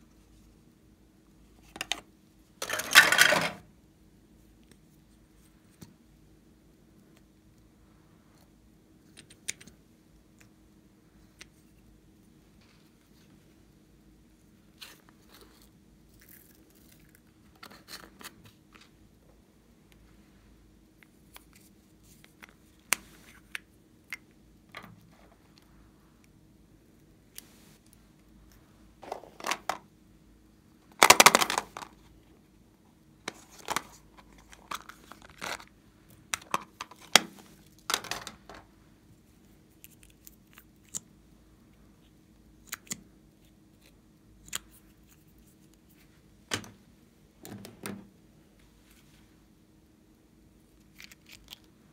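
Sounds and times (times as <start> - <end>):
plastic containers clicking and tapping: 31.0 - 31.9, 37.9 - 38.6.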